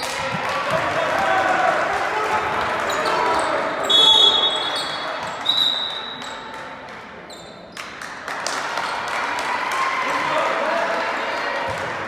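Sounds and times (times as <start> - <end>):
court noise: 0.0 - 12.0
referee's whistle blasts: 3.1 - 6.3.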